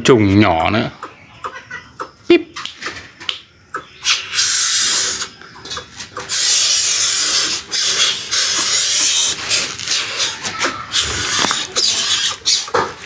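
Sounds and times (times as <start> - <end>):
bird hissing loudly: 4.0 - 5.3, 6.3 - 12.6.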